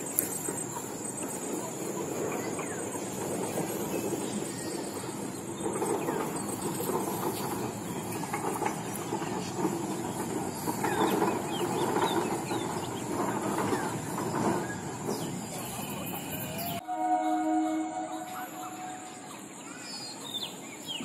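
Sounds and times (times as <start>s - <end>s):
bird chirps: 10.1s - 21.0s.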